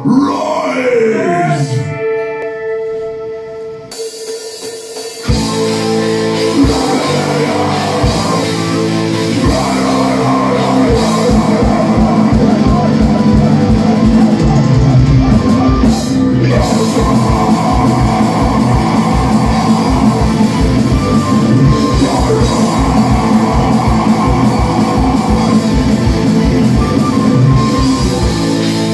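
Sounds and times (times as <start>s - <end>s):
metal band playing: 0.0s - 28.9s
rapid kick drum strokes: 16.5s - 28.9s.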